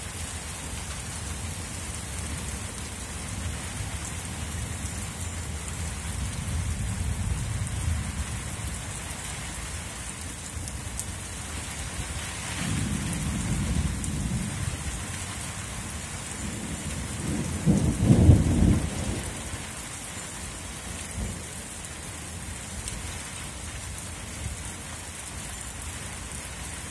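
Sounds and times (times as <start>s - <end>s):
steady rain: 0.0s - 26.9s
thunder rolling: 16.6s - 19.5s.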